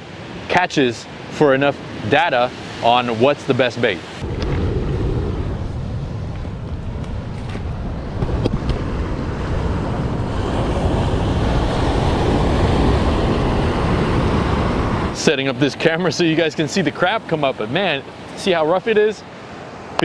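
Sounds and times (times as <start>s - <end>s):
ocean surf breaking on rocks: 0.1s - 20.0s
wind rumbling on microphone: 4.1s - 15.2s.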